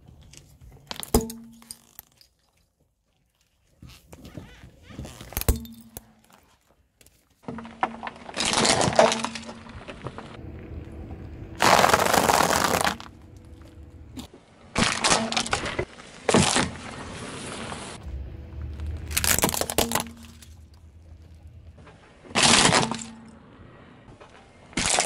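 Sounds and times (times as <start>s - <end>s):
faint low hum: 9.6s - 14.7s, 18.0s - 24.7s
tyre crushing objects: 11.6s - 17.3s, 18.6s - 23.2s.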